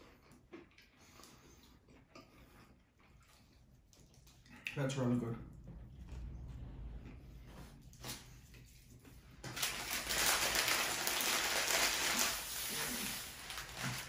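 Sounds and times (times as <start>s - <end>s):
paper wrapper rustling and crinkling: 8.0s - 14.0s.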